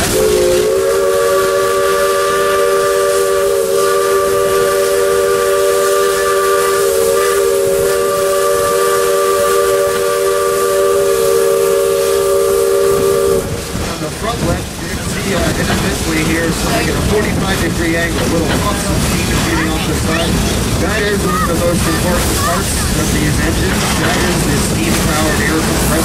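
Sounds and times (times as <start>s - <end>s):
steam locomotive whistle: 0.0s - 13.9s
steam hissing: 0.0s - 26.0s.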